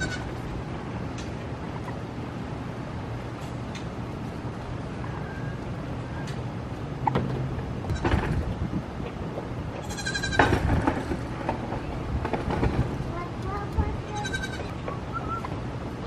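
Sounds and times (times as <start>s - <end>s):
goat bleating: 0.0s - 0.3s, 9.8s - 10.4s, 14.1s - 14.7s
low steady hum: 0.0s - 16.0s.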